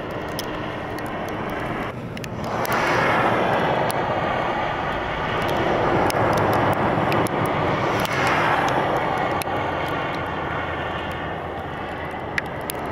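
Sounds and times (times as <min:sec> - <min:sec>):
traffic on slushy road: 0:00.0 - 0:12.9
faint ticks: 0:04.9 - 0:10.3, 0:10.9 - 0:12.9.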